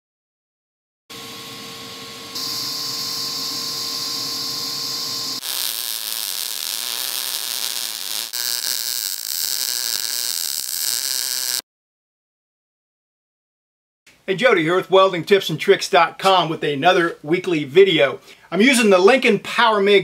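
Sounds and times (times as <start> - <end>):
tig welding arc hissing: 2.3 - 11.6
mig welding arc spattering: 2.4 - 11.6
stick welding arc: 2.4 - 11.6.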